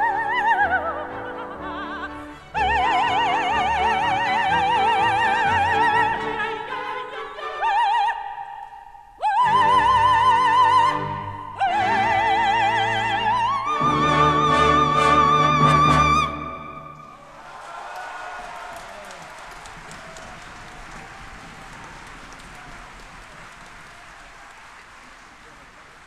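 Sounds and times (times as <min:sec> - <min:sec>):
symphony orchestra: 0:00.0 - 0:08.6, 0:09.2 - 0:17.4
operatic soprano singing: 0:00.0 - 0:16.8.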